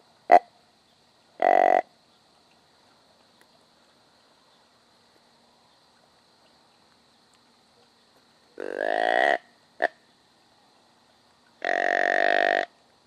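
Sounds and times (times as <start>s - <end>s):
buzzy deer grunt call: 11.6s - 12.7s.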